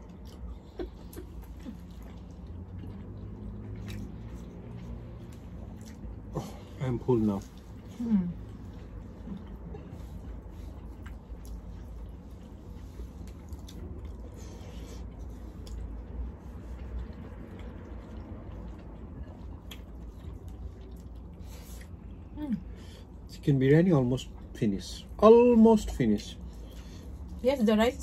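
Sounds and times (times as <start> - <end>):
quiet chewing: 0.0 - 25.2.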